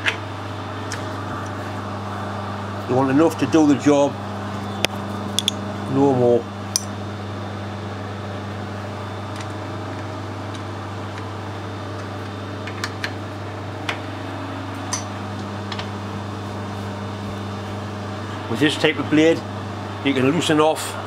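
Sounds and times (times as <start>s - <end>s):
machine hum: 0.0s - 21.0s.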